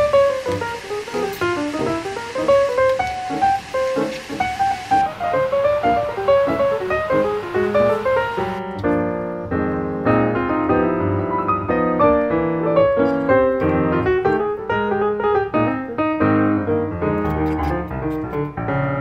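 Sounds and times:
instrumental piano music: 0.0s - 19.0s.

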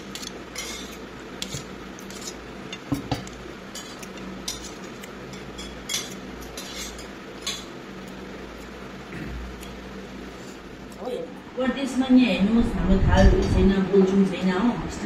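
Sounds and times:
cutlery clinking against a dish: 0.0s - 7.8s.

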